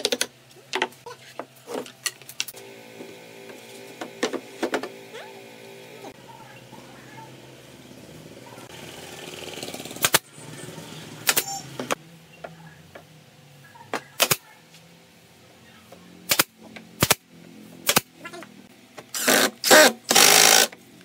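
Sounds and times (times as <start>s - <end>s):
pneumatic nail gun firing: 9.7s - 10.2s, 11.2s - 11.6s, 16.3s - 17.2s, 17.8s - 18.1s, 19.1s - 20.7s.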